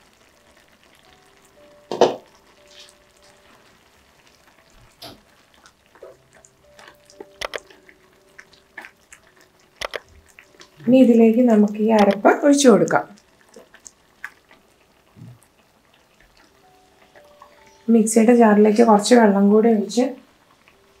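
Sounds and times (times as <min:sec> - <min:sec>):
pot knock: 0:01.9 - 0:02.3
spatula stirring in saucepan: 0:02.5 - 0:18.3.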